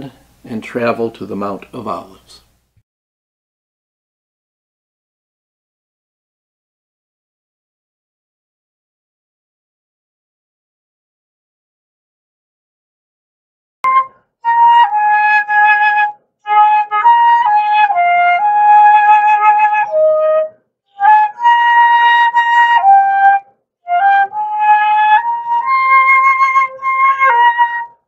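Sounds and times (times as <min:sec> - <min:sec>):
slow wind instrument melody: 0:13.8 - 0:28.0.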